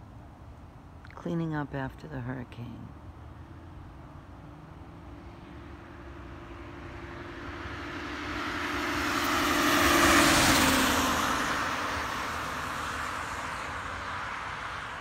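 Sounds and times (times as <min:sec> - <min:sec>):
car passing by: 0:04.3 - 0:15.0.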